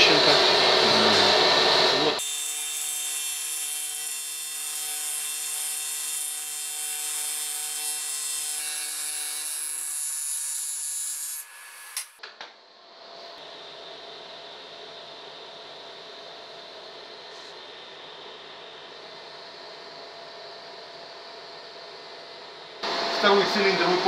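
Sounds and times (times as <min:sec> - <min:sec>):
loud whir: 0:00.0 - 0:02.2.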